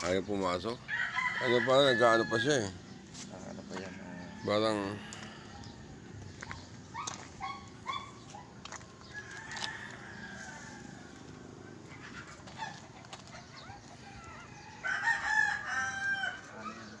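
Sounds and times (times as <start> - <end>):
rooster crowing: 0.9 - 2.7, 9.1 - 11.3, 14.1 - 16.7.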